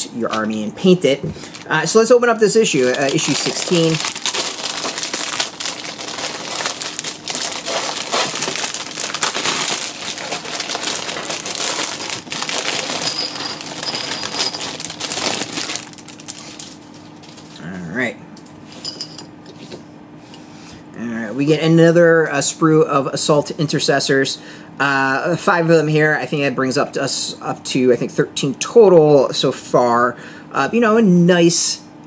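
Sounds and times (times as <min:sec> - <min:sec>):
handling plastic and paper: 0:01.4 - 0:17.6
plastic bag crinkling: 0:01.4 - 0:17.6.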